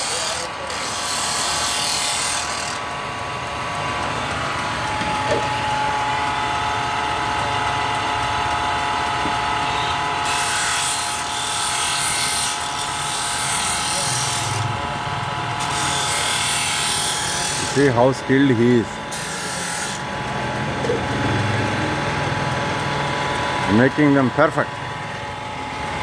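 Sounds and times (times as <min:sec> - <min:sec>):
wood rasping on sanding disc: 0:00.0 - 0:02.8, 0:10.2 - 0:14.7, 0:15.6 - 0:18.0, 0:19.1 - 0:20.0
sanding machine hum: 0:00.0 - 0:26.0.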